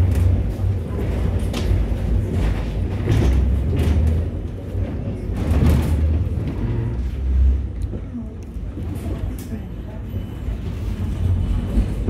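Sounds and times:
tram low rumble: 0:00.0 - 0:12.0.

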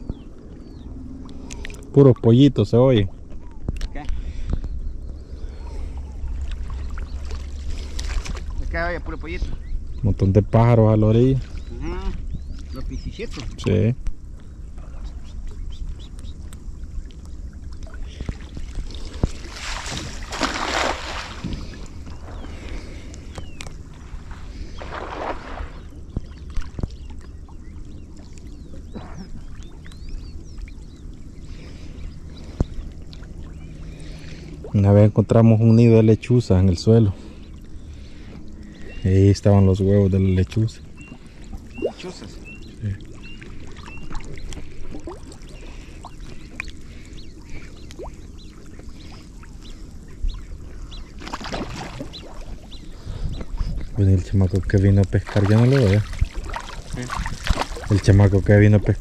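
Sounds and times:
small birds peeping and chirping: 0:00.0 - 0:01.9, 0:03.3 - 0:20.0, 0:20.8 - 0:59.0
steady low rumble: 0:00.0 - 0:51.2
ducks whistling chirps: 0:40.9 - 0:54.0.

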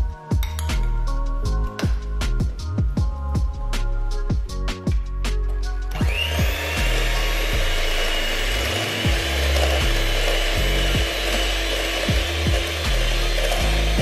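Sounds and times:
electric hand mixer whining: 0:05.9 - 0:14.0.

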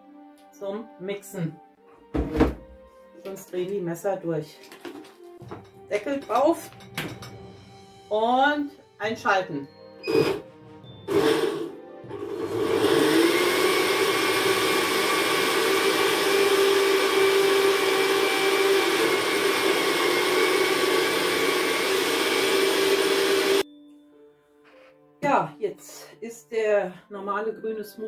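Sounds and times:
blender motor running: 0:10.1 - 0:10.4, 0:11.1 - 0:23.6.

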